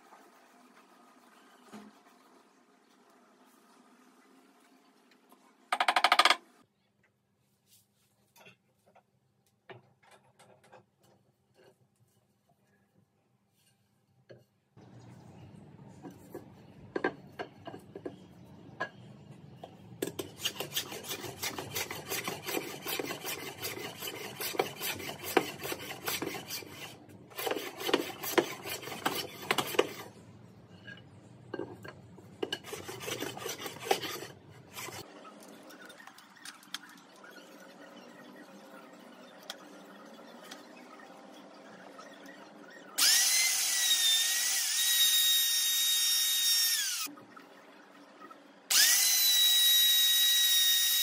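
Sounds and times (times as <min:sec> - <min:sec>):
hand plane shaving wood: 0:20.3 - 0:30.1, 0:32.6 - 0:35.0.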